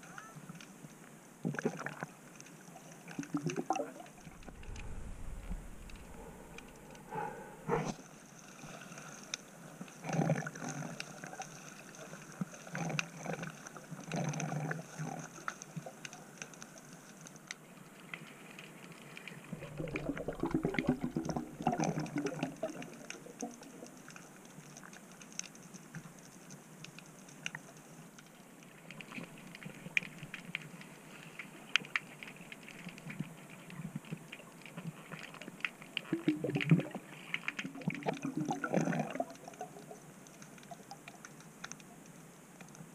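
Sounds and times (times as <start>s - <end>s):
faint underwater crackling clicks: 0.1s - 42.9s
muffled underwater rush: 3.1s - 8.2s, 19.4s - 24.0s
muffled knocks and rustles underwater: 4.2s - 8.0s.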